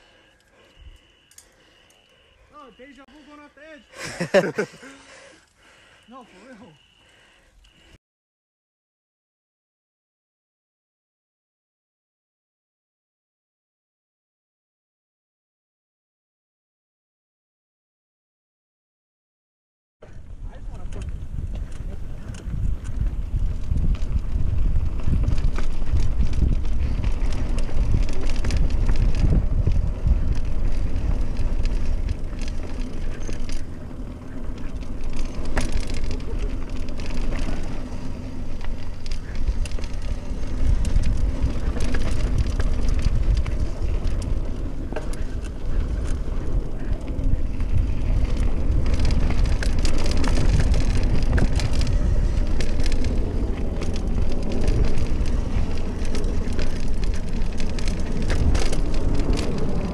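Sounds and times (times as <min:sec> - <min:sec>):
bike rattling over bumps: 0:20.0 - 0:59.9
wind buffeting microphone: 0:20.1 - 0:59.9
tyres crunching over dirt: 0:21.6 - 0:59.9.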